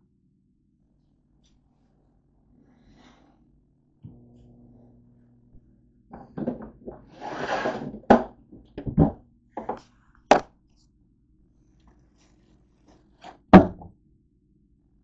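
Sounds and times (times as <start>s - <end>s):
faint low hum: 0.0s - 15.0s
knocks in plastic bin: 13.6s - 13.9s.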